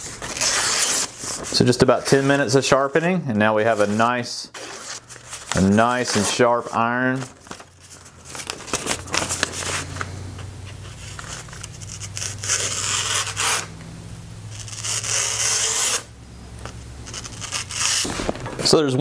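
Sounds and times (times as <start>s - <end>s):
plane iron slicing paper: 10.9s - 13.7s, 14.5s - 16.1s, 17.1s - 18.9s.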